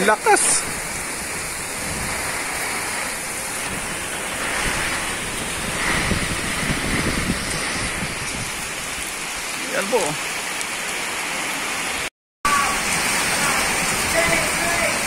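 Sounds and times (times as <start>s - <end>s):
strong wind: 0.0s - 9.6s, 11.7s - 15.0s
wind gusts buffeting microphone: 0.0s - 10.2s
heavy rain: 0.0s - 15.0s.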